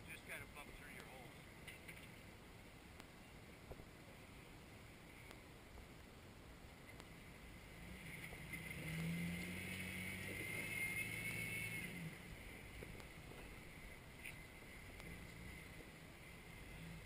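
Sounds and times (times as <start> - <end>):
high whine: 2.5 - 17.0
engine pulling under load: 7.6 - 17.0.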